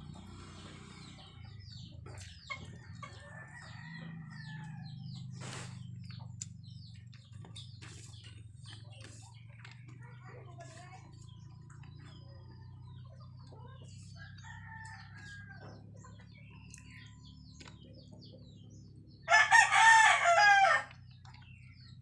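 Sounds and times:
rooster crowing: 0:19.3 - 0:21.0.

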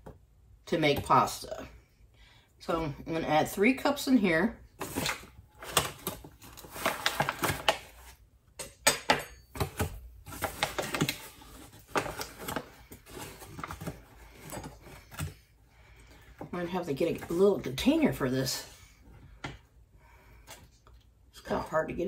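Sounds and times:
paper bag crinkling and scraping: 0:04.8 - 0:08.2, 0:10.2 - 0:15.2.

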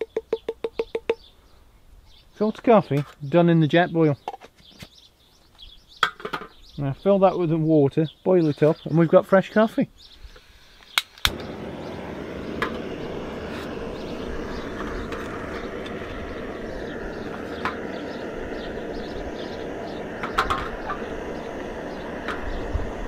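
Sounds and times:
gas stove burner running: 0:11.2 - 0:23.0.

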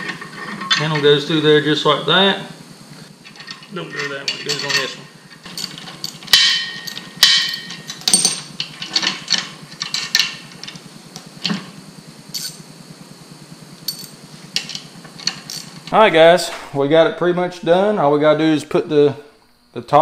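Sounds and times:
steel parts clanking: 0:03.3 - 0:10.8.

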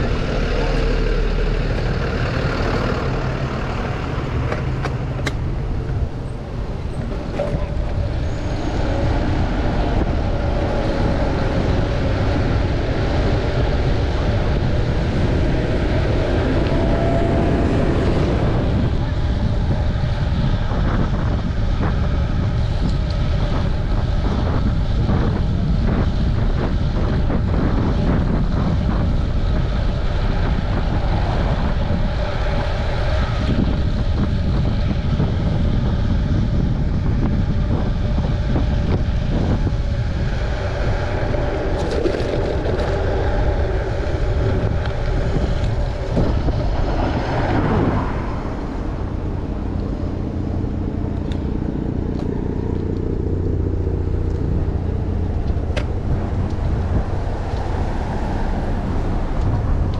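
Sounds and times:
wavering rising tone: 0:00.0 - 0:19.9
passing cars and trucks: 0:00.0 - 0:59.9
wind buffeting microphone: 0:00.0 - 0:59.9.

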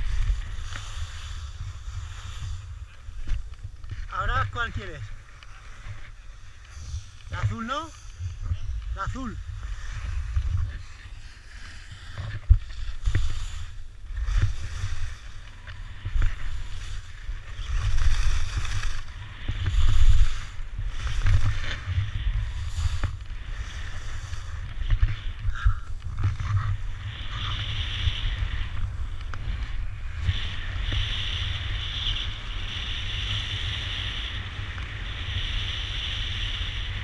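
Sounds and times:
skis scraping over hard snow: 0:00.0 - 0:37.0
wind buffeting microphone: 0:00.0 - 0:37.0.

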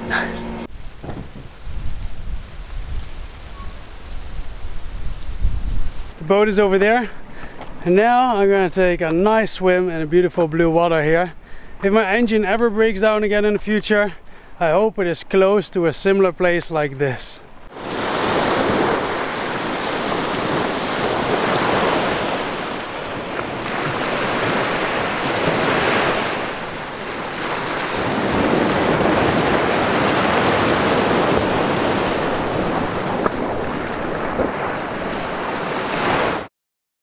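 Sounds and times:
wind buffeting microphone: 0:00.7 - 0:06.2, 0:17.8 - 0:35.6
small waves breaking on beach: 0:17.7 - 0:36.5.

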